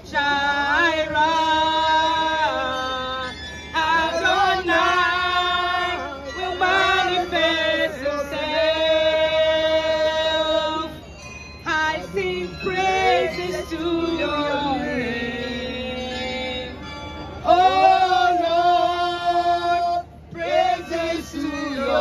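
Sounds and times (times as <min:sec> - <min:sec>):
woman singing into microphone: 0:11.7 - 0:16.6.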